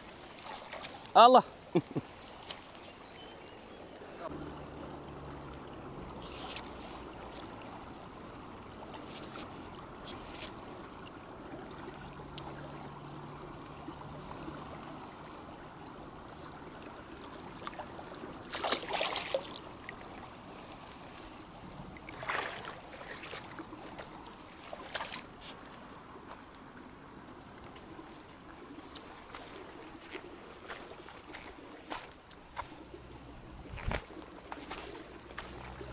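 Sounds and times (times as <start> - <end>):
river water rushing: 0.0 - 35.9
fish splashing on a line: 16.2 - 25.6.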